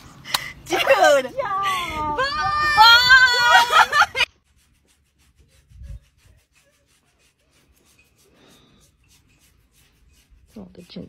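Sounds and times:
hand scratching fur: 0:02.2 - 0:11.0.

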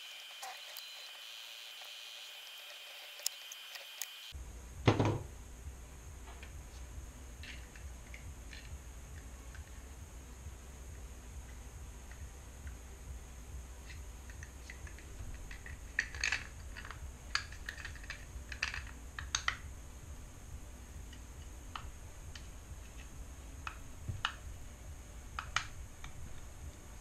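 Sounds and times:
faint low hum: 0:00.0 - 0:27.0.

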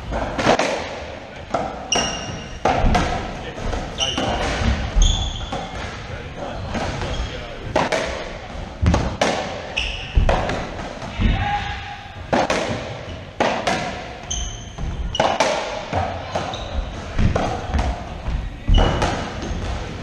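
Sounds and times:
ball cracking off racquets and walls: 0:00.1 - 0:06.0, 0:07.7 - 0:11.4, 0:12.3 - 0:18.1
shoes squeaking on hardwood floor: 0:01.8 - 0:05.9, 0:07.0 - 0:07.6, 0:09.6 - 0:10.5, 0:14.2 - 0:19.9.

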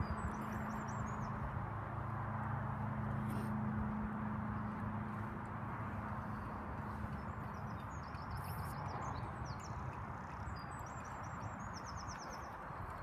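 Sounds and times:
horse hooves on sand: 0:00.0 - 0:13.0
small bird singing: 0:07.0 - 0:13.0.

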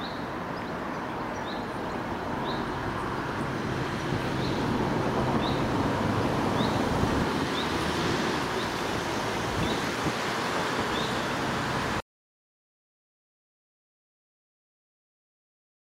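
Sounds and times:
flowing river water: 0:00.0 - 0:12.0
low traffic hum: 0:00.0 - 0:12.0.

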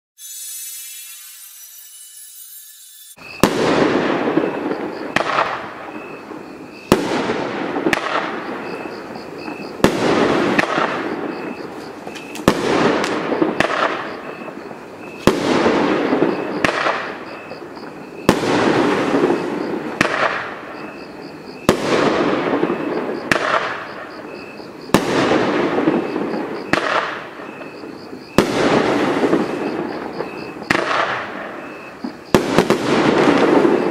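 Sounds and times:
firework shots banging: 0:03.2 - 0:33.9.

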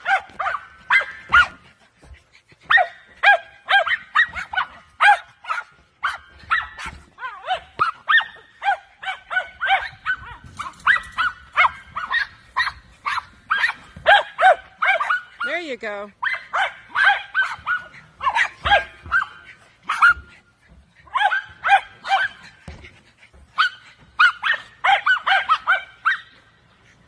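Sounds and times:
small dogs barking: 0:00.0 - 0:15.6, 0:16.2 - 0:26.5.

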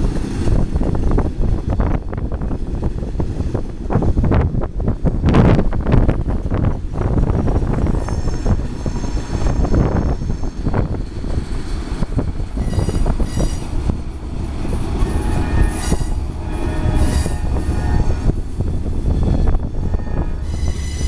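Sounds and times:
train wheels rumbling on rail: 0:00.0 - 0:21.0
high-pitched wheel squeal: 0:07.9 - 0:10.6, 0:12.6 - 0:13.7, 0:15.0 - 0:18.4, 0:19.0 - 0:21.0.

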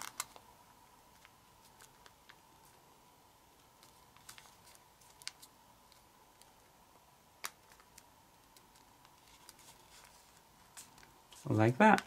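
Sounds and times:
paper being folded: 0:00.0 - 0:00.4, 0:03.6 - 0:06.6, 0:07.4 - 0:12.0.

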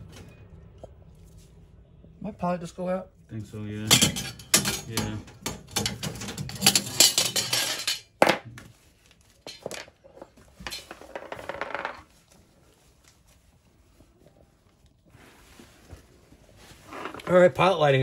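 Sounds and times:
metal parts clinking: 0:03.9 - 0:08.1.

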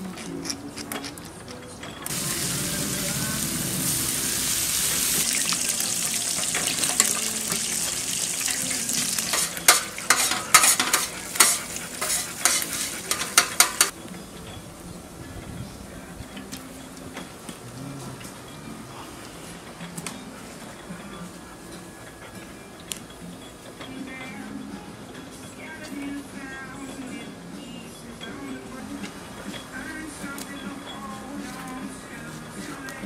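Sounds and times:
meat sizzling on a grill: 0:02.1 - 0:13.9.

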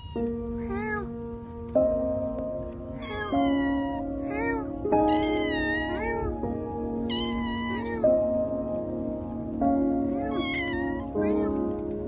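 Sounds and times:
cat meowing: 0:00.0 - 0:01.2, 0:02.9 - 0:08.4, 0:10.1 - 0:11.8
background music with sustained chords: 0:00.2 - 0:12.0.

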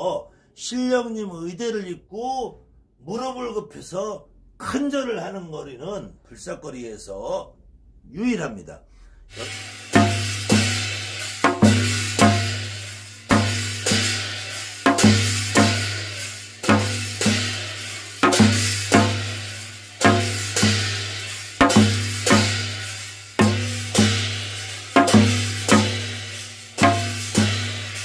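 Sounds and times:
hourglass drum strokes: 0:09.3 - 0:28.0.

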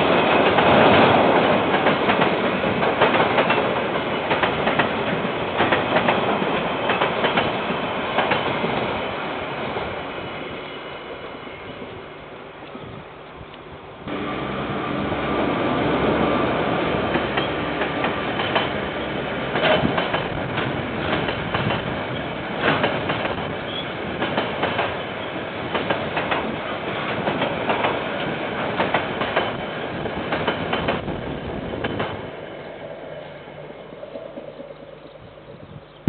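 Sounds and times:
train wheels clacking over rail joints: 0:00.0 - 0:08.6, 0:17.0 - 0:31.2.

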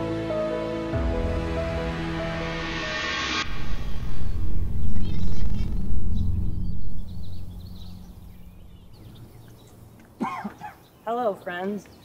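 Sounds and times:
loud low rumble: 0:00.9 - 0:09.9
birds chirping: 0:04.0 - 0:12.0.

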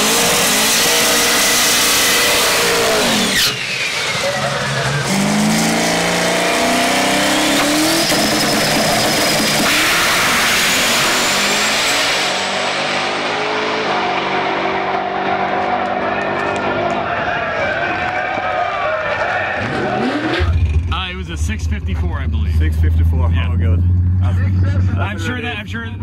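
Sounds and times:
car engine accelerating hard: 0:00.0 - 0:26.0.

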